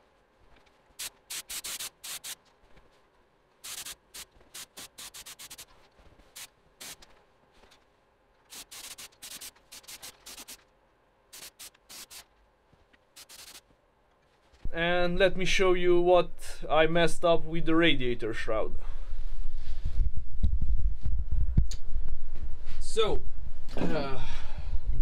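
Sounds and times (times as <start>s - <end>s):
spray gun hissing bursts: 1.0s - 2.4s, 3.6s - 5.7s, 6.3s - 7.0s, 8.5s - 10.6s, 11.3s - 12.3s, 13.2s - 13.6s.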